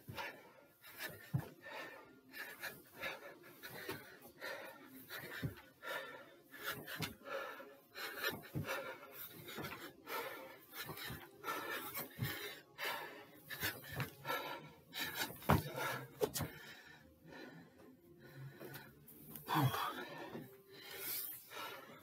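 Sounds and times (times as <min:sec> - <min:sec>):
man panting: 0:00.0 - 0:22.0
feet thudding on stair step: 0:15.1 - 0:16.6.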